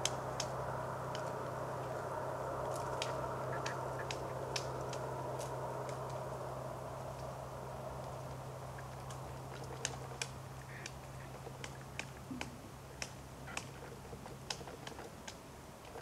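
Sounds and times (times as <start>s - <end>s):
woodpecker pecking at tree trunk: 8.0s - 15.4s.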